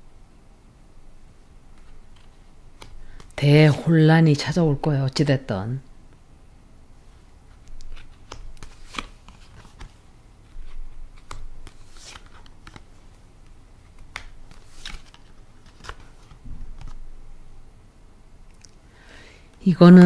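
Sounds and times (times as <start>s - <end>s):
cards snapping and flicking: 1.8s - 3.4s, 7.6s - 10.0s, 10.6s - 12.9s, 13.9s - 17.0s.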